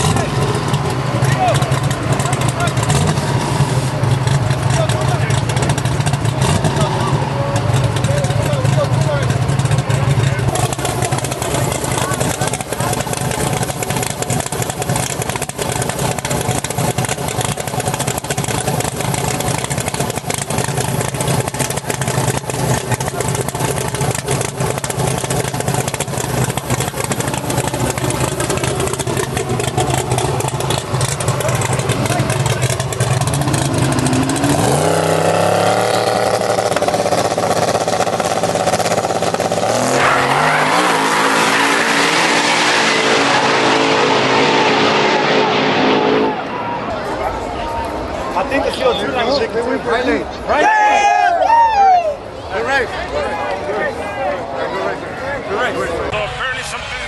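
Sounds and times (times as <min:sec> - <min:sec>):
truck engine idling: 0:00.0 - 0:43.4
race truck engines revving: 0:00.0 - 0:57.0.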